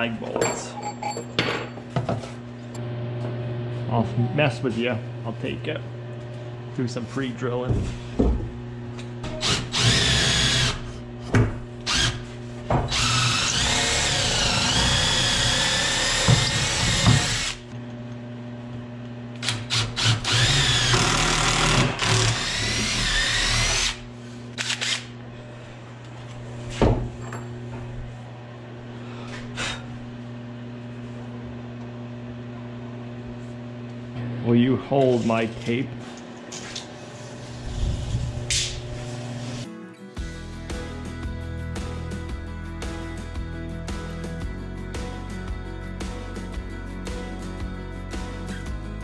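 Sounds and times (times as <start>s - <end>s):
steady low hum: 0.0s - 39.6s
cordless drill drilling wood: 9.4s - 10.8s, 11.9s - 12.2s, 12.9s - 17.7s, 19.4s - 24.0s, 24.6s - 25.1s.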